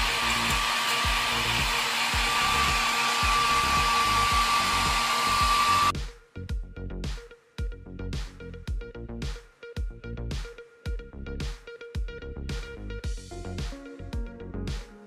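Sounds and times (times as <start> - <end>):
blow dryer whining: 0.0 - 5.9
background music with steady beat: 0.0 - 15.0.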